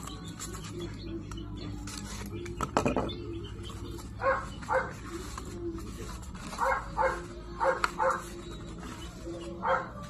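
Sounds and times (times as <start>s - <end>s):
dog barking: 4.2s - 5.0s, 6.6s - 8.3s, 9.6s - 10.0s.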